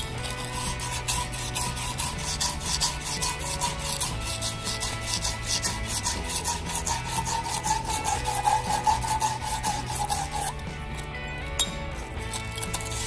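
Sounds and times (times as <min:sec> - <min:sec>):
sand cloth rasping on copper pipe: 0:00.0 - 0:13.0.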